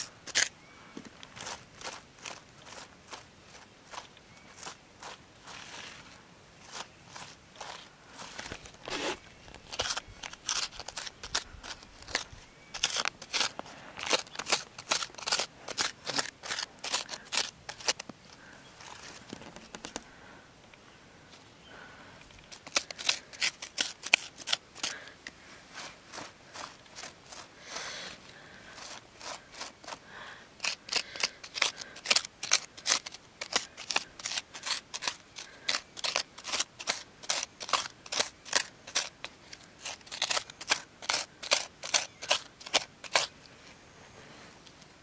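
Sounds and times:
sharp clicks and scrapes: 0:06.7 - 0:20.1, 0:22.2 - 0:27.5, 0:30.6 - 0:43.3.

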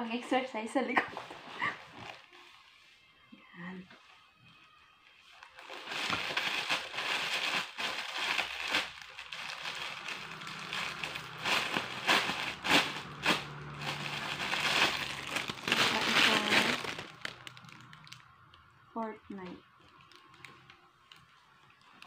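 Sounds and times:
plastic bag crinkling: 0:05.4 - 0:18.7, 0:19.7 - 0:22.0.

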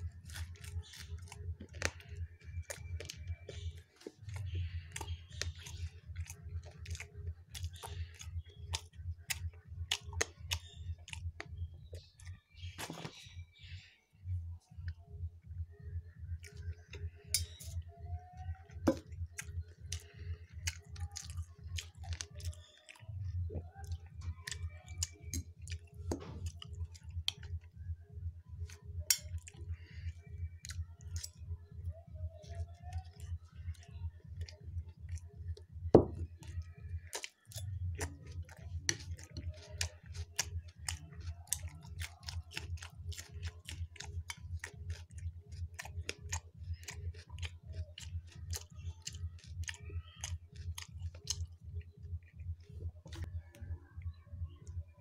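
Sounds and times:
person chewing crunchy food: 0:00.0 - 0:13.8, 0:16.0 - 0:54.8
low hum: 0:00.0 - 0:41.8.

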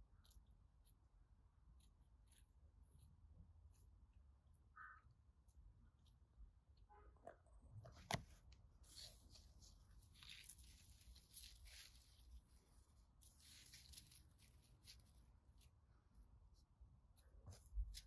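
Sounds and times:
dry leaves crackling rustle: 0:08.9 - 0:15.7.

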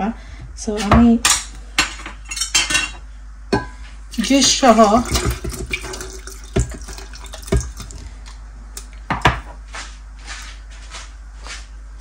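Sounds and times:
liquid pouring and splashing: 0:04.1 - 0:08.4.

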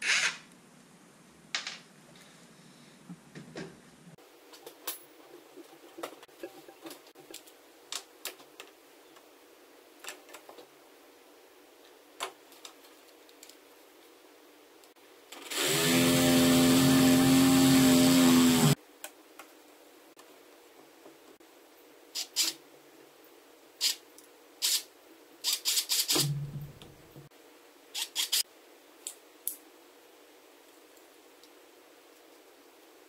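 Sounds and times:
cordless drill running: 0:15.4 - 0:18.8.

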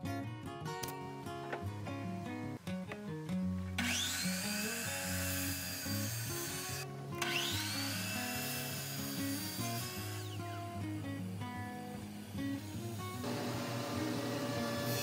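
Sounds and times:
saw blade cutting wood: 0:03.8 - 0:10.5, 0:12.2 - 0:15.0
miter saw motor whine: 0:03.8 - 0:10.6, 0:11.2 - 0:15.0.

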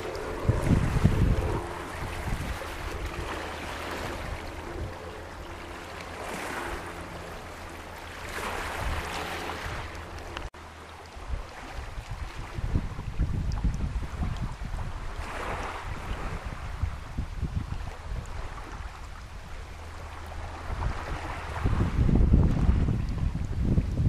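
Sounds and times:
waves lapping on pebble beach: 0:00.0 - 0:10.5, 0:13.9 - 0:16.9, 0:20.0 - 0:23.0
steady low rumble: 0:00.0 - 0:15.2.

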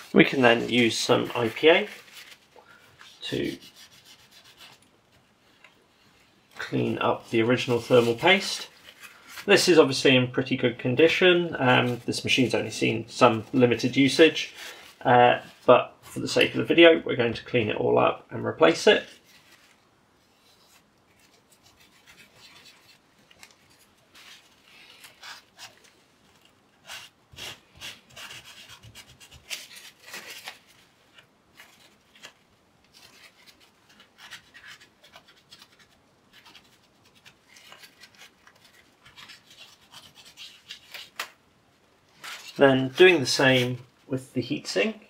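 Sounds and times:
cloth scrubbing strokes: 0:00.0 - 0:09.6.

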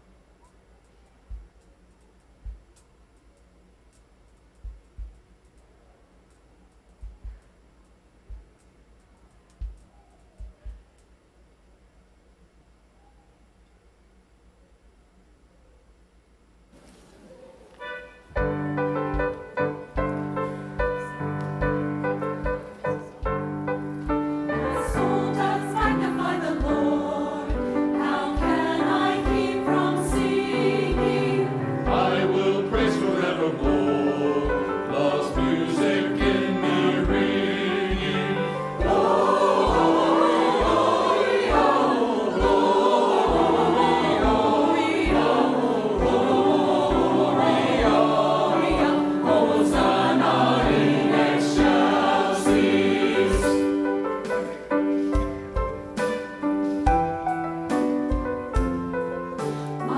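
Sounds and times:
piano accompaniment: 0:17.8 - 0:59.9
group of voices singing: 0:24.4 - 0:54.0.

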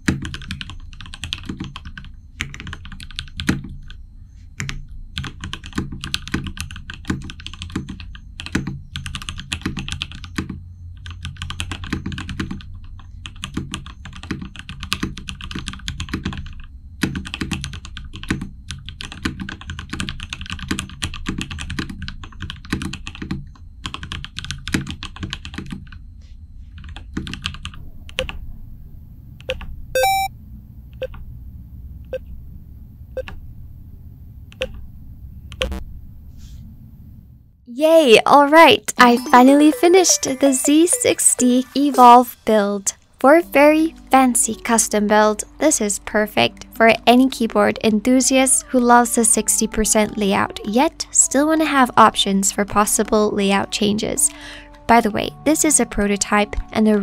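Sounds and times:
mechanical keyboard typing: 0:00.0 - 0:04.0, 0:04.6 - 0:26.0, 0:26.8 - 0:28.3.

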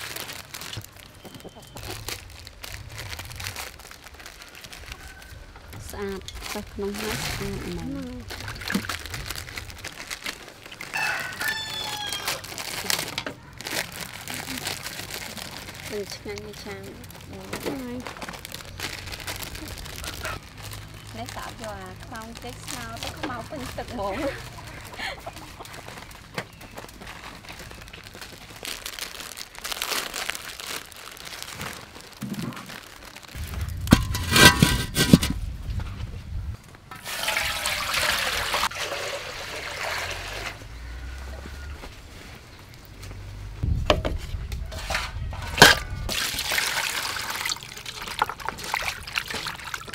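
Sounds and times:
plastic packets crinkling and tearing: 0:00.0 - 0:35.3, 0:44.4 - 0:49.9
rooster crowing: 0:04.4 - 0:05.7, 0:10.9 - 0:12.6
steel wok clanking: 0:33.8 - 0:35.4, 0:44.7 - 0:46.2
wet handling in water: 0:46.1 - 0:49.9.

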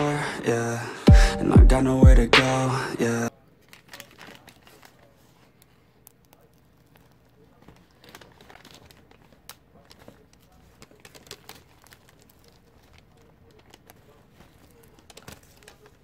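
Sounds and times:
pastry crackling being torn: 0:06.0 - 0:16.0.

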